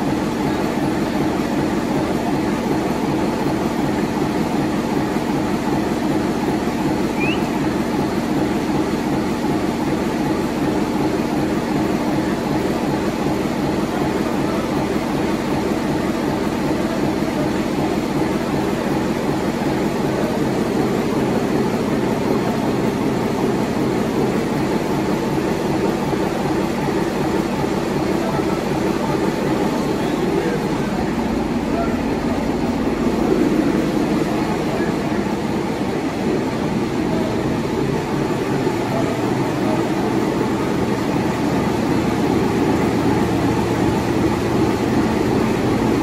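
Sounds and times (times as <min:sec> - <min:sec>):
large diesel engine running: 0:00.0 - 0:46.0.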